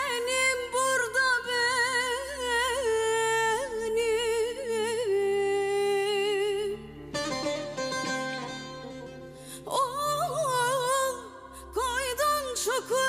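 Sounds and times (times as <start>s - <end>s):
woman singing: 0.0s - 7.4s, 9.5s - 13.0s
plucked string instruments: 6.8s - 11.3s.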